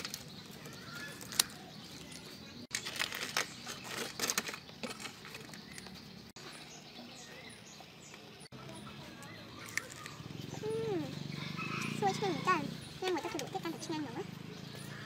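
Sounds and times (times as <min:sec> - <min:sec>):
crispy crust crackling and crunching: 0:00.0 - 0:06.1, 0:09.2 - 0:10.3.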